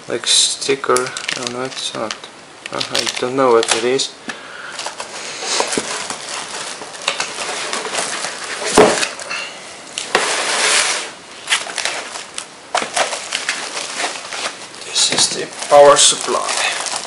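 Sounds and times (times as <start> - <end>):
plastic wrapping rustling: 0.2 - 17.0
plastic crinkling: 0.7 - 17.0
cardboard scraping: 4.8 - 9.2, 10.0 - 17.0.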